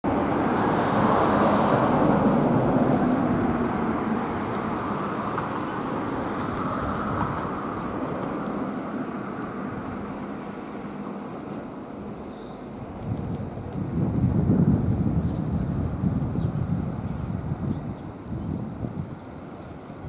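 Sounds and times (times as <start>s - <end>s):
traffic rumble: 0.0s - 20.0s
short hiss: 1.4s - 2.0s.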